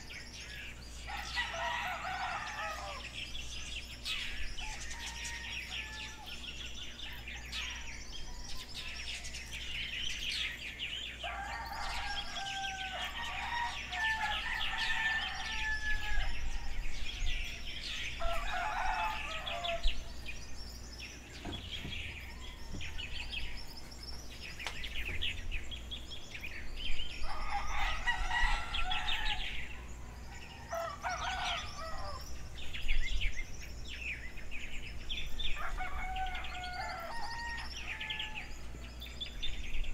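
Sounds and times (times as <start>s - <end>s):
small birds chirping: 0.0s - 39.9s
rooster crowing: 1.1s - 3.2s, 4.5s - 6.4s, 11.2s - 17.6s, 18.2s - 20.7s, 27.2s - 32.4s, 35.6s - 39.0s.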